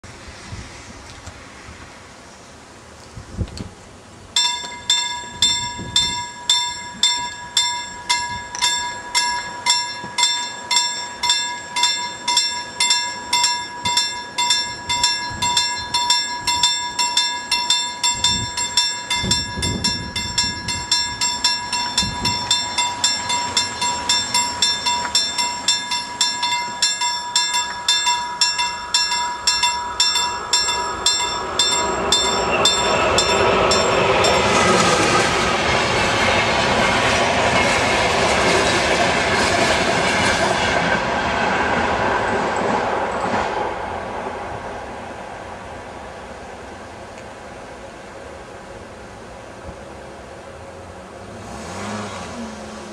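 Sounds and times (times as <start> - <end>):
approaching train: 0.0 - 52.9
level-crossing warning bell ringing: 4.3 - 40.3.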